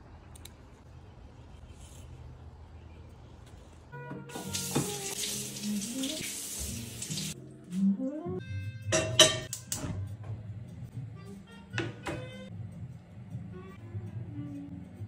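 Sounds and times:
faucet running into sink: 4.3 - 7.4.

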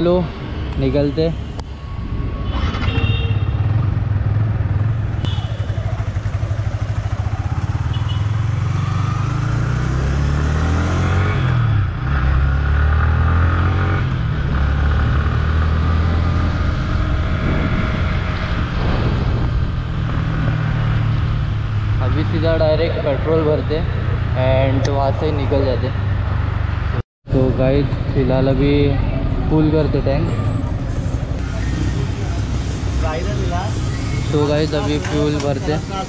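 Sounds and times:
wind noise: 1.6 - 3.5, 16.2 - 22.1
motorcycle engine accelerating: 2.4 - 27.0.

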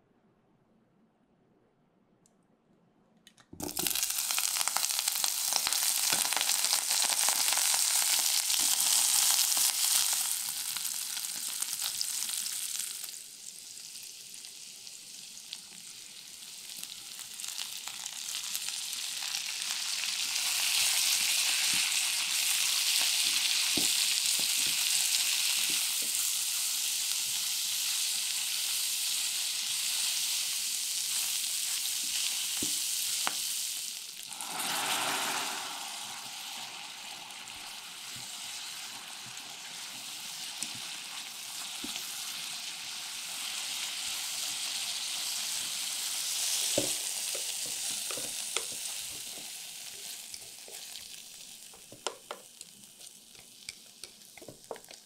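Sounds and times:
meat sizzling in hot oil: 3.6 - 55.0
spatula tapping and scraping: 46.7 - 50.9, 51.7 - 55.0.

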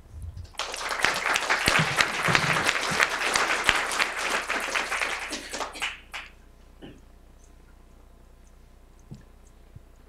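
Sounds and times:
audience applauding: 0.5 - 6.4.

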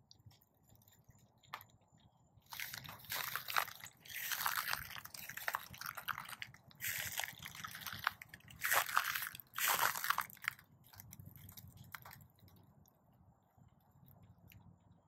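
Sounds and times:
footsteps crunching on pine straw: 2.5 - 10.6.

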